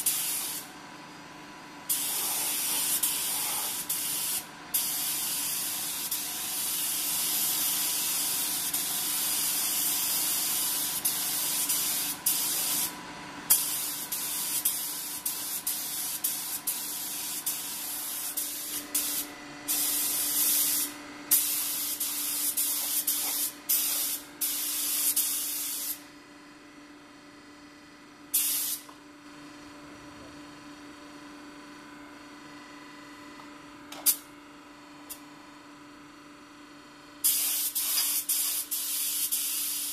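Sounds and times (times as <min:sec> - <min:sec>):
spray gun hissing: 0:00.0 - 0:00.6, 0:01.9 - 0:12.9, 0:13.5 - 0:26.0, 0:28.4 - 0:28.9, 0:37.2 - 0:39.9
steady hum: 0:00.0 - 0:38.3.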